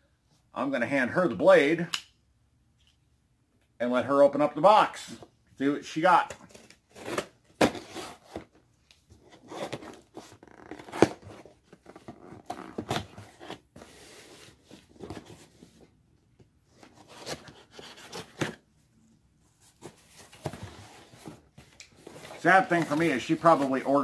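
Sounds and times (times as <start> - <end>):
knife cutting cardboard box: 6.9 - 8.5, 9.2 - 15.4.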